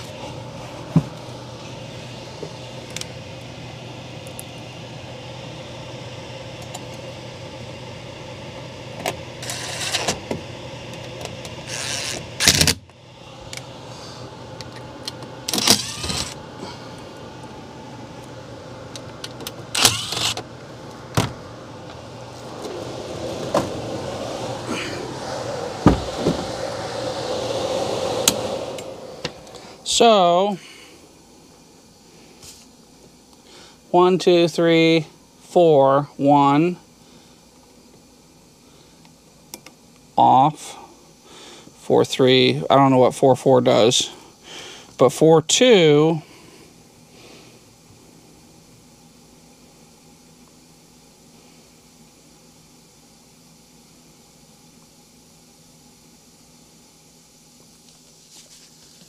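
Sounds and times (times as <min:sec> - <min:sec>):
air handler humming: 0:00.0 - 0:59.0
cordless drill whirring: 0:09.4 - 0:10.2, 0:11.6 - 0:12.8, 0:15.5 - 0:16.4, 0:19.7 - 0:20.4.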